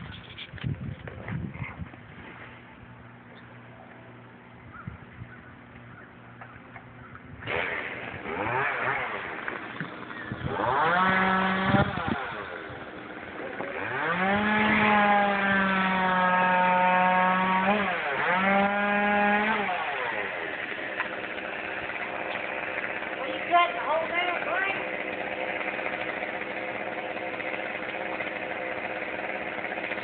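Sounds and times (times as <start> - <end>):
chainsaw cutting: 7.4 - 30.0.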